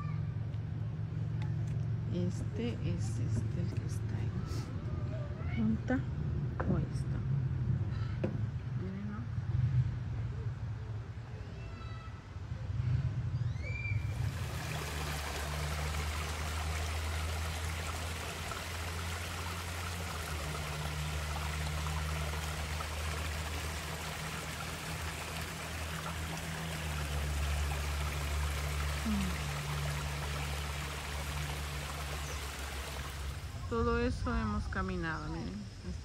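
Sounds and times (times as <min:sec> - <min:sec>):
waterfall and creek rushing: 0:14.2 - 0:33.6.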